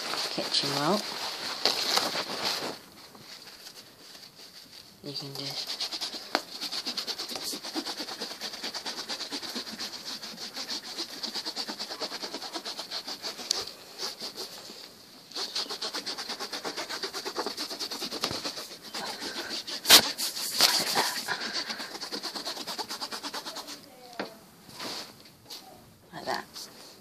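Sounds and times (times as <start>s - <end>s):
paper towel scrubbing mesh: 0.0s - 23.9s.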